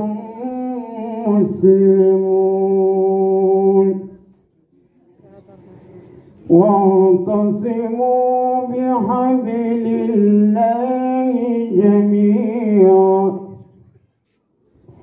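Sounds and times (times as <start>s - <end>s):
man chanting melodically: 0.0s - 4.3s, 6.5s - 13.8s.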